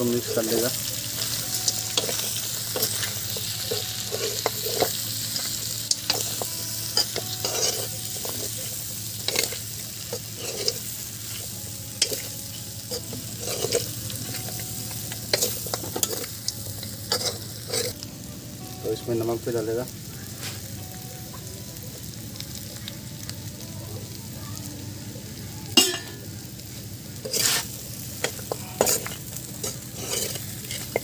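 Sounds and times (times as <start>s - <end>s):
meat sizzling in a wok: 0.0s - 31.0s
metal spoon scraping a pan: 0.2s - 16.4s, 17.1s - 18.0s, 27.2s - 31.0s.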